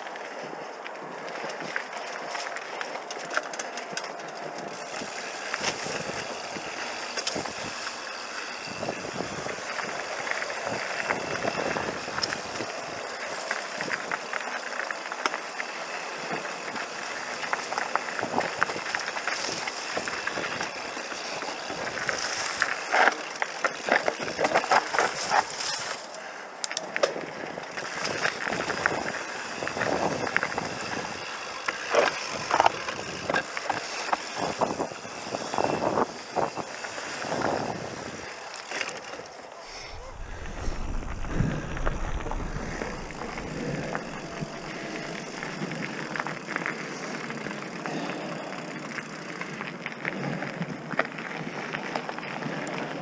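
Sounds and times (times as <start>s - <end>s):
bike clattering and rattling: 0.3s - 52.9s
tyres on dirt and stones: 38.2s - 47.6s.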